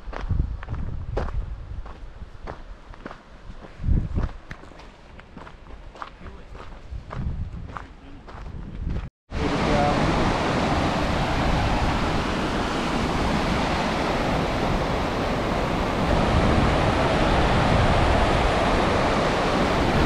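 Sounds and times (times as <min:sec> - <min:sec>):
water rushing over rocks: 0:09.4 - 0:20.0.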